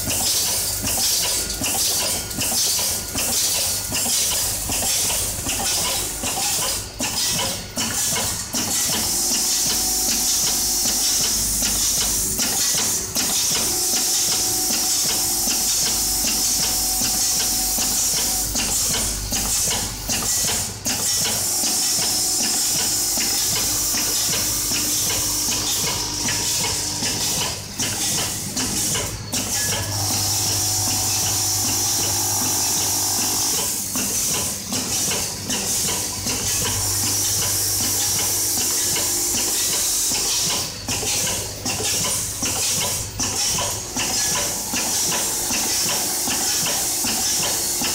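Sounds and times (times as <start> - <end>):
machine humming: 13.2 - 41.1.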